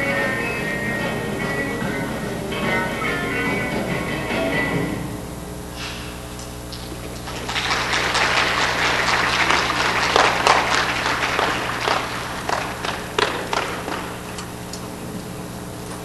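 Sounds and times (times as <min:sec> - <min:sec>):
steady low hum: 0:00.0 - 0:16.0
audience applauding: 0:06.7 - 0:14.6.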